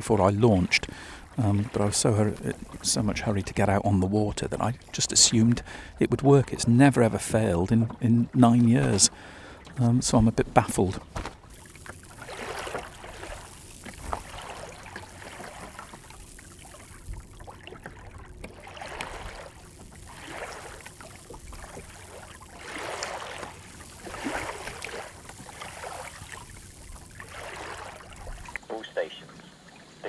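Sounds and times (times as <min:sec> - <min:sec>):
water gurgling along boat hull: 0:00.0 - 0:30.0.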